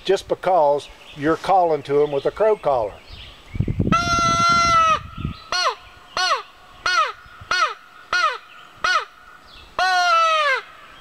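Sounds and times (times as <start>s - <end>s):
crow call caws: 4.0s - 11.0s.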